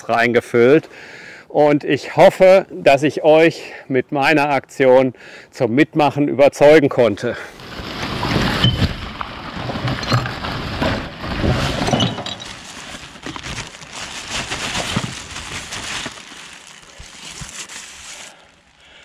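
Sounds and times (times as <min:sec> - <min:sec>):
plastic sack and fabric rustling: 0:07.6 - 0:19.0.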